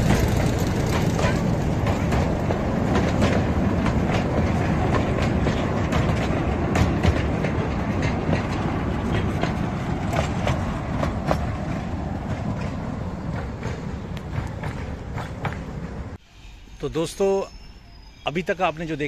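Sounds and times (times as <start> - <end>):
toy train rumbling on track: 0.0 - 9.4
wheels clicking on rails: 0.0 - 16.2.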